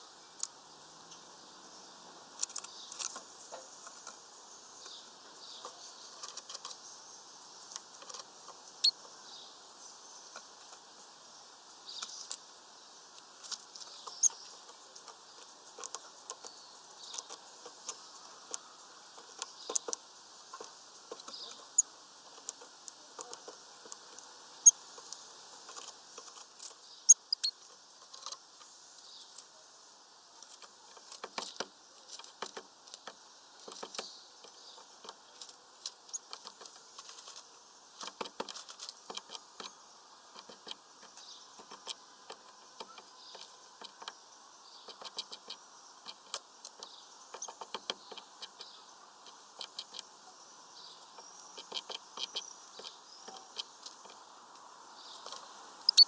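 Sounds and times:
bird pecking on wood: 13.5 - 21.5, 30.4 - 35.2, 38.0 - 44.2, 44.9 - 50.1, 51.2 - 54.2.

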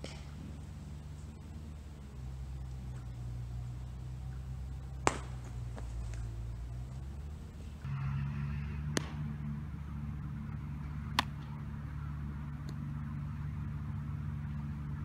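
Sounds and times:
bat hitting ball: 0.0 - 1.0, 2.8 - 7.9, 8.5 - 9.7, 10.7 - 11.8
steady low hum: 0.0 - 15.0
ball smacking into glove: 5.0 - 6.3, 8.9 - 9.3, 11.1 - 11.4.

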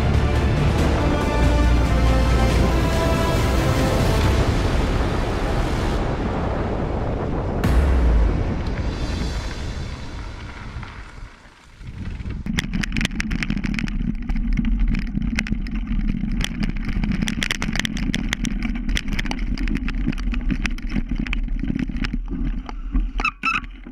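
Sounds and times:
sharp clicks and knocks: 12.0 - 23.9.

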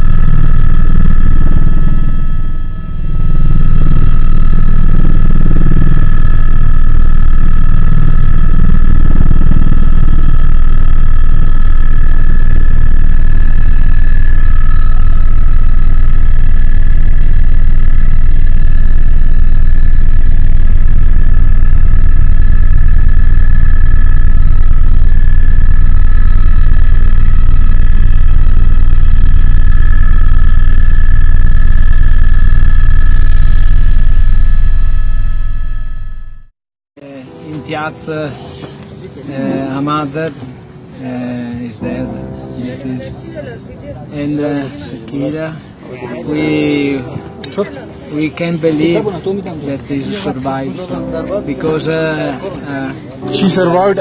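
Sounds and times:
helicopter rotor and turbine noise: 0.0 - 36.5.

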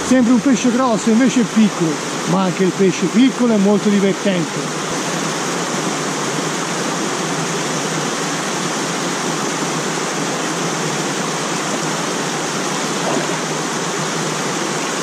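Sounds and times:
stream rushing over stones: 0.0 - 15.0.

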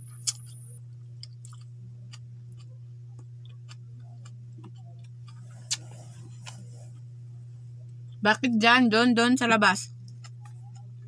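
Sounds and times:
low hum: 0.0 - 11.0
person chewing: 1.2 - 7.1, 10.0 - 10.9.

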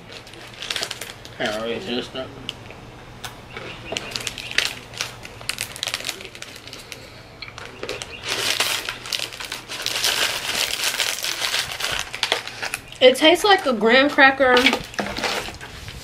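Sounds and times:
plastic wrapper crinkling: 0.0 - 16.0.

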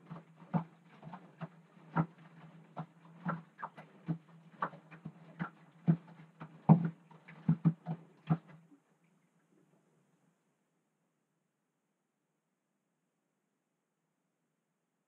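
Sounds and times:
washing machine drum sloshing: 0.0 - 8.6.

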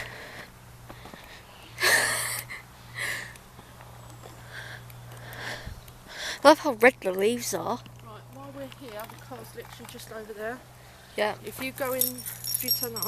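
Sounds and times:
faint breaths: 0.0 - 6.5, 10.6 - 11.3.

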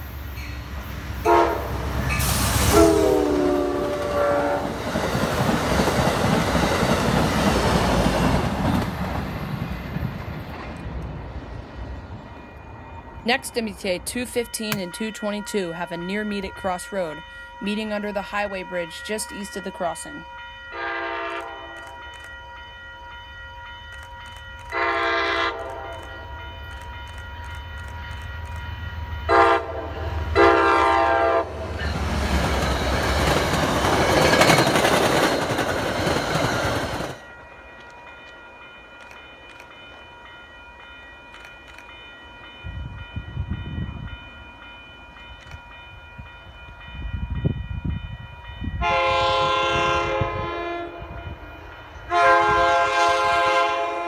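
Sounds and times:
approaching train rumbling: 0.0 - 54.0
train horn blasts: 1.2 - 4.8, 20.7 - 22.1, 24.7 - 26.2, 29.3 - 31.9, 48.7 - 51.3, 52.1 - 54.0
crossing bell ringing: 11.8 - 53.7.

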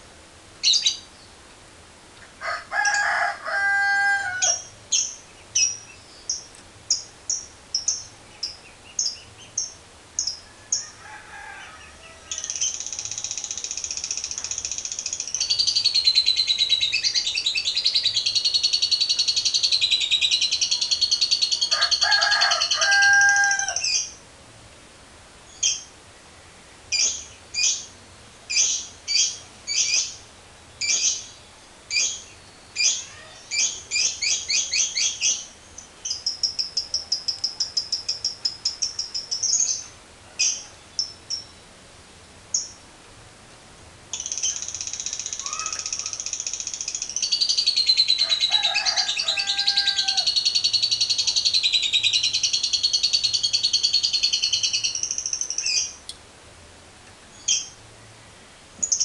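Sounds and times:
lovebird chirping and trilling: 0.6 - 1.3, 4.4 - 11.0, 12.3 - 24.2, 25.5 - 25.9, 26.9 - 27.9, 28.5 - 30.2, 30.8 - 41.6, 44.2 - 56.0, 57.3 - 57.8, 58.8 - 59.0
lower drawn-out bird call: 45.0 - 46.6, 47.2 - 56.0.

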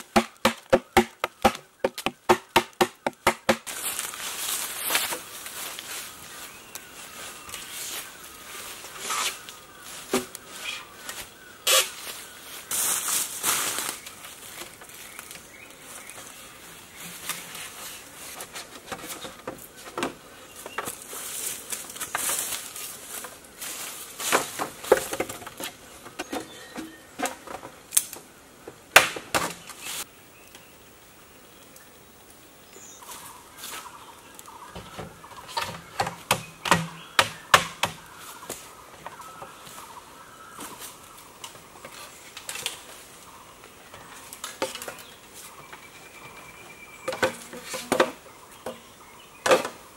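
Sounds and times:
bamboo poles knocking together: 0.0 - 3.7, 18.3 - 21.0, 24.2 - 28.2, 29.0 - 29.8, 34.7 - 39.5, 47.0 - 48.8, 49.4 - 49.8.

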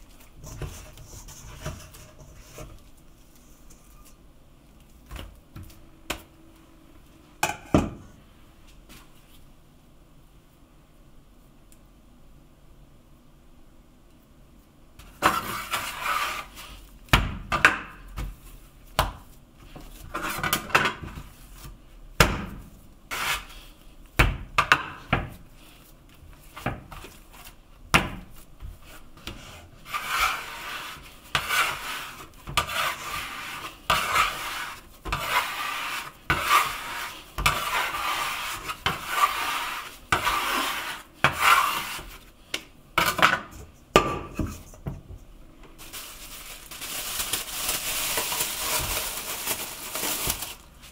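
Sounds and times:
dough rubbed on wooden board: 29.4 - 42.2.

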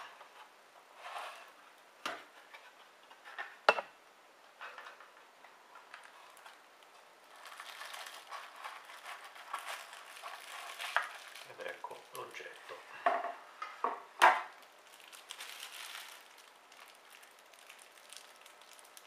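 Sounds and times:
plastic film crinkling: 5.8 - 12.8, 14.5 - 19.0.

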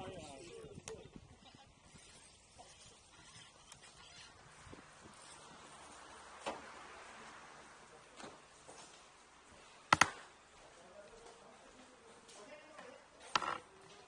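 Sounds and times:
sharp clicks and taps: 9.9 - 10.3.

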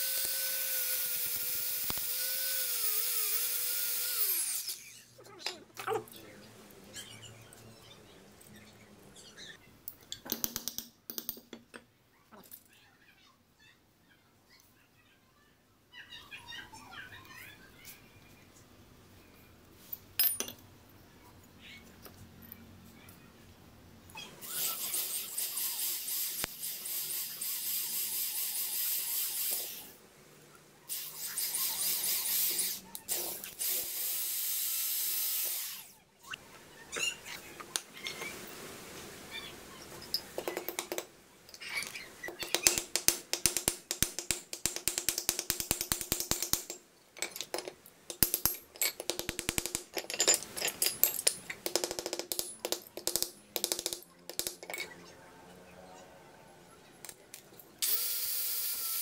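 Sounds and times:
electric drill boring through steel: 0.0 - 5.0, 57.8 - 59.0.

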